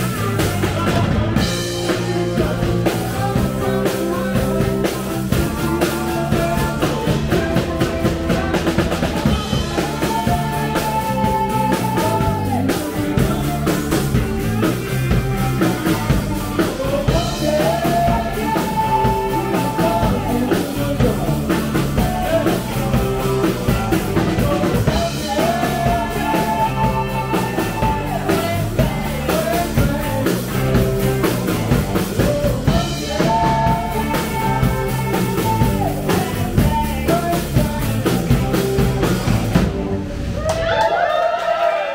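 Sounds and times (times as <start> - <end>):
electric bass: 0.0 - 40.7
drum kit: 0.0 - 40.8
electric guitars: 0.0 - 40.9
woman singing lead vocal: 9.3 - 13.7, 16.6 - 23.3, 24.3 - 30.9, 32.2 - 38.2.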